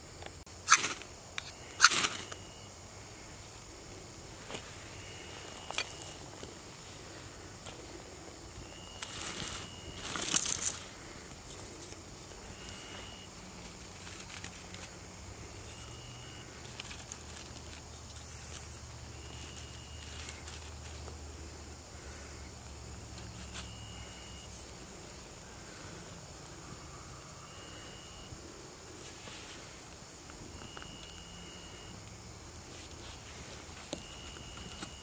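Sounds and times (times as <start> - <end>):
twigs dropped clicking: 9.0 - 10.9.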